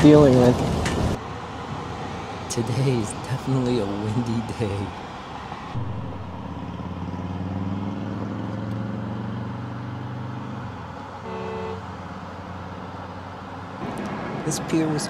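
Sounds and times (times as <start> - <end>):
low engine drone: 0.7 - 9.2
wind noise: 5.6 - 7.4.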